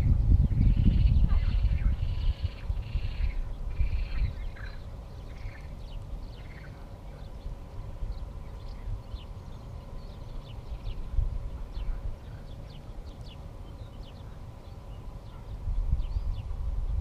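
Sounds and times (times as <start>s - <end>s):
uneven low rumble: 0.0s - 17.0s
animal calls and chirps: 0.5s - 16.5s.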